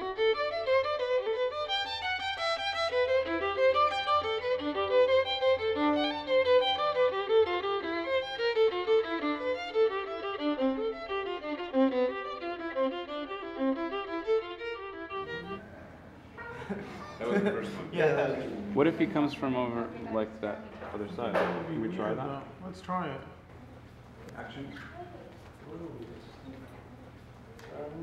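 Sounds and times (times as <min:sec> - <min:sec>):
violin playing quick runs: 0:00.0 - 0:15.6.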